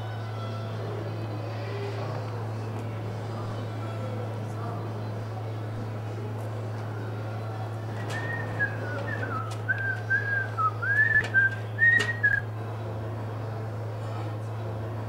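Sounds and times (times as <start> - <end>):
person whistling a tune: 8.1 - 12.4.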